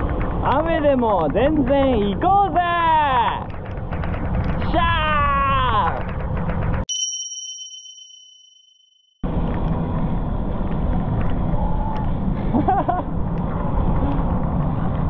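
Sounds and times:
bicycle road noise: 0.0s - 6.8s, 9.3s - 15.0s
bright ding: 6.9s - 9.1s.

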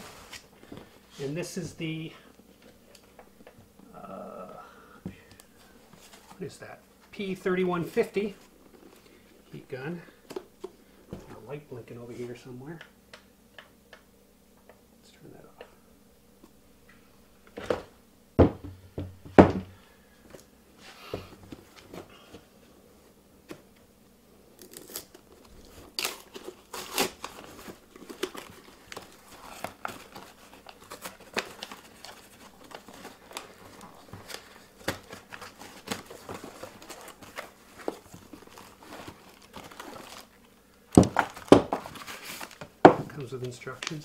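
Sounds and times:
packaging crinkling: 24.6s - 42.7s
cardboard box tearing: 25.8s - 33.5s.

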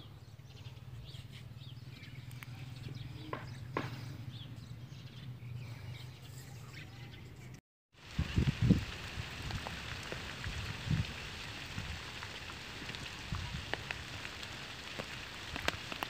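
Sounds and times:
small birds chirping: 0.0s - 7.6s.

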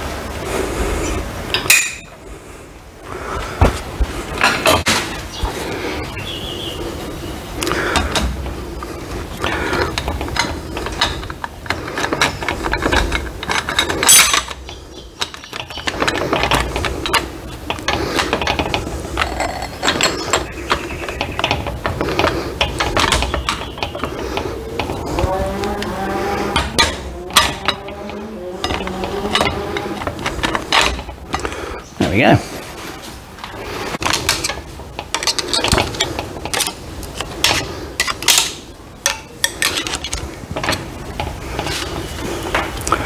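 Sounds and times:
small metal knocks: 9.4s - 31.6s, 33.4s - 41.9s
metal gears clinking together: 10.0s - 17.2s.

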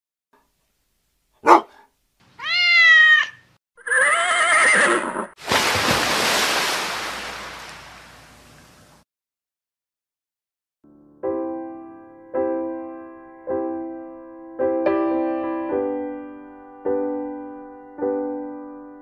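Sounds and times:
dog bark: 1.4s - 1.9s
cat meow: 2.4s - 4.8s
horse whinny: 2.4s - 5.4s.

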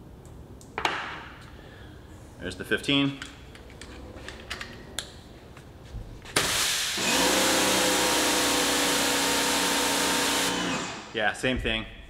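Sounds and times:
motor and pump hum: 7.0s - 11.1s.

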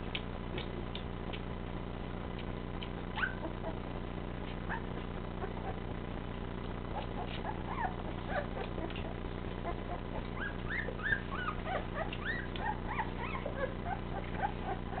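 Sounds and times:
steady low hum: 0.0s - 15.0s
puppies whimpering and squeaking: 2.8s - 5.9s, 6.9s - 15.0s.

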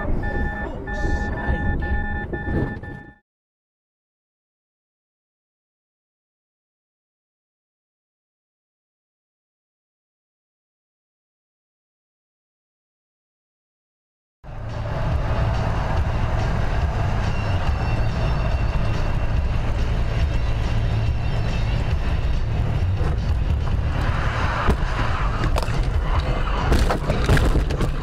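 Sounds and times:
car road and engine rumble: 0.0s - 3.2s, 14.5s - 28.0s.

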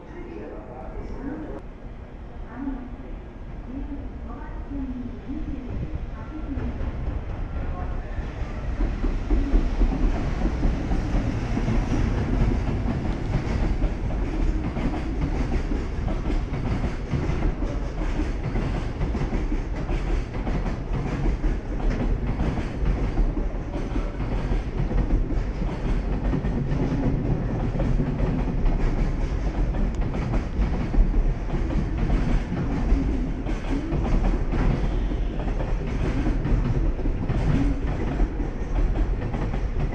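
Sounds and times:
electric locomotive passing: 0.0s - 39.9s
train wheels clattering over rail joints: 8.7s - 39.9s.

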